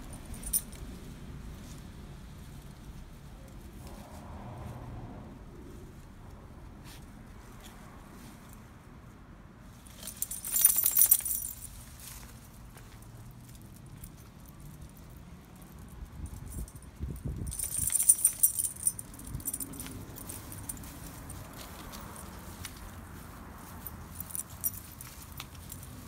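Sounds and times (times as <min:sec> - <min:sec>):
small metal pieces jingling: 0:09.9 - 0:12.2, 0:13.8 - 0:22.6, 0:23.6 - 0:26.0.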